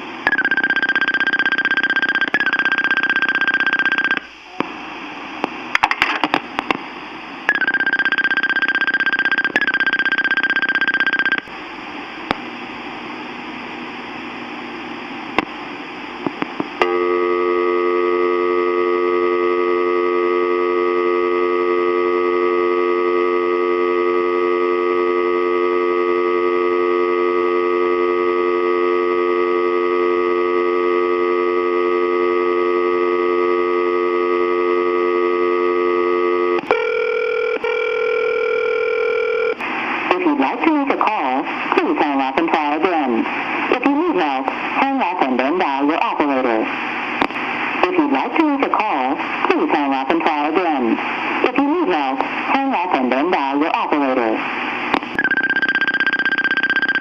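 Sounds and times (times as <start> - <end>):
telephone dial tone: 0.3 - 4.2, 7.5 - 11.5, 16.8 - 39.6, 55.2 - 57.0
tape hiss with clicks: 5.4 - 6.9, 11.2 - 11.5, 12.2 - 12.5, 15.3 - 17.0, 47.2 - 48.0, 54.9 - 55.2.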